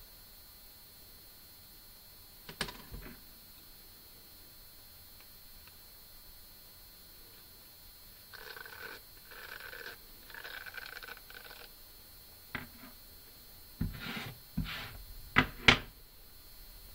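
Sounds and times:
slicker brush scratchy rasps: 8.3s - 11.7s, 13.8s - 15.0s
brush knocking on wooden table: 12.6s - 12.9s, 13.8s - 15.9s.

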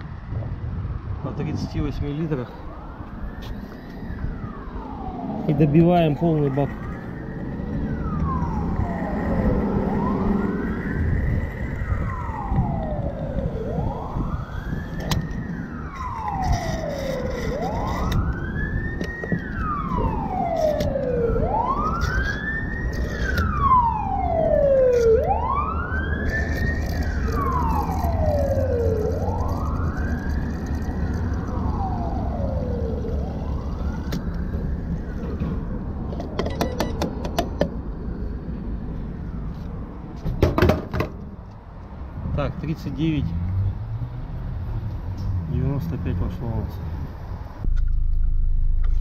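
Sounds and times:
siren wailing: 0.8s - 37.0s.

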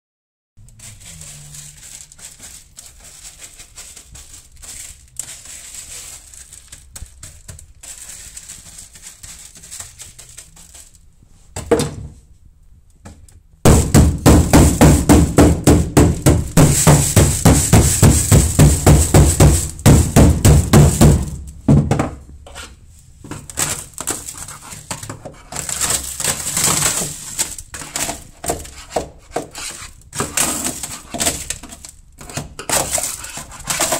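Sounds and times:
brush scraping dry ice pellets: 0.6s - 11.1s, 16.2s - 21.2s, 23.4s - 33.9s
rubber mallet pounding on metal: 13.7s - 22.0s
knock: 13.7s - 22.2s.

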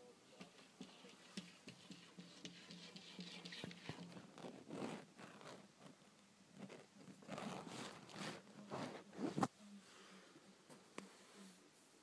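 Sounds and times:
phone rustling against fabric: 0.4s - 6.0s, 6.6s - 9.5s.

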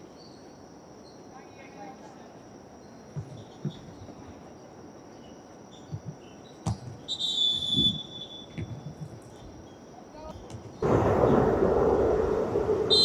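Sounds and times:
ball kick: 6.0s - 7.0s.

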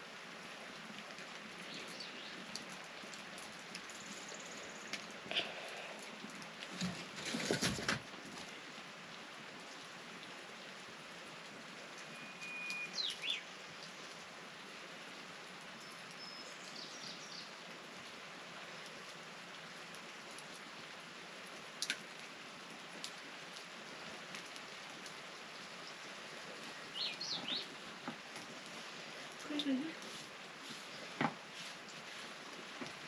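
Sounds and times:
rain falling: 0.0s - 33.0s
bird chirps: 12.1s - 13.5s, 26.9s - 27.7s.

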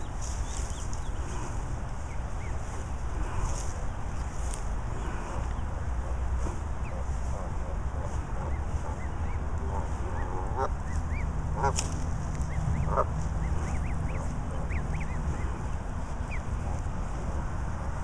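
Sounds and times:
goslings peeping: 0.0s - 18.0s
goose calls: 5.0s - 16.8s.

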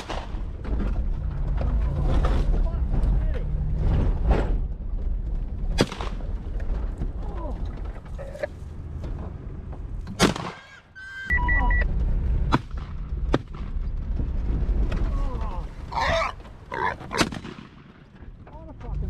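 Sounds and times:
vehicle rumbling over rough ground: 0.0s - 19.0s
electronic beeping: 11.0s - 11.9s.

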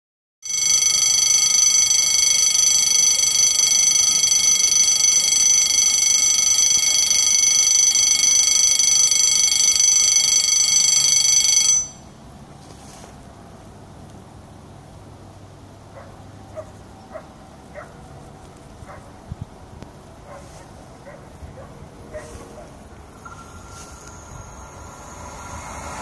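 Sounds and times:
level crossing warning bell ringing: 0.4s - 12.1s, 23.1s - 26.0s.

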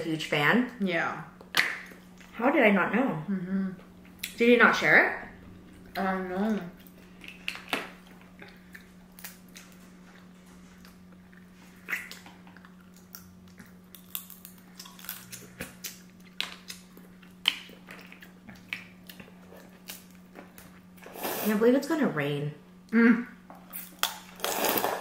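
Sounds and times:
faint steady hum: 0.0s - 25.0s
quiet chewing: 5.4s - 21.2s.

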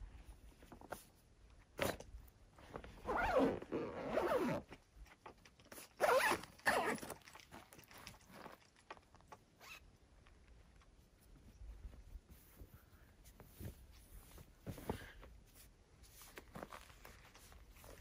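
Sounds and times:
zipper pulled: 3.0s - 4.7s, 6.0s - 7.2s
fabric rustling: 11.3s - 18.0s.

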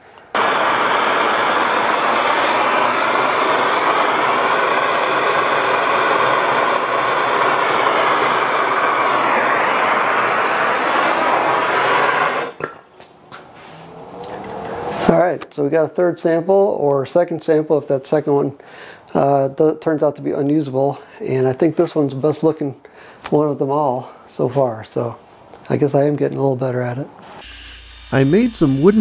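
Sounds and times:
torch flame hissing: 0.3s - 12.7s, 27.4s - 29.0s.

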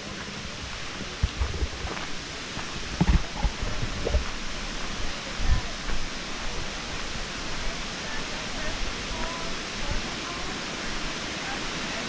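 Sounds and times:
distant waterfall roar: 0.0s - 12.0s
low thumps: 2.8s - 4.5s.

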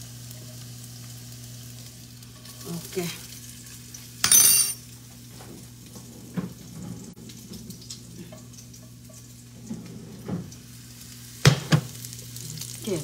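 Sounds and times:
meat sizzling in a pan: 0.0s - 4.2s, 10.4s - 13.0s.

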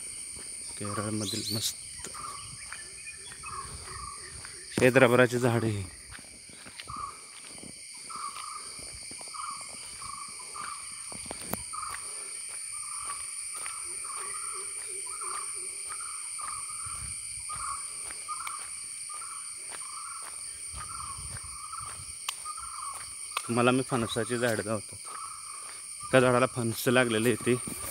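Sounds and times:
insects droning: 0.0s - 27.9s
soft footsteps: 2.0s - 5.2s, 6.0s - 23.6s.

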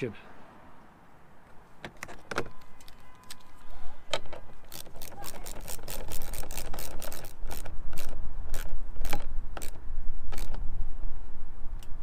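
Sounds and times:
socket ratchet clicking: 4.2s - 10.6s.

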